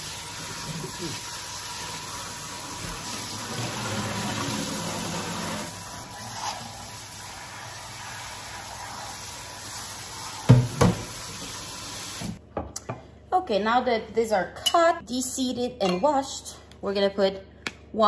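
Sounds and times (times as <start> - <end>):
kitchen tap running: 0.0 - 12.4.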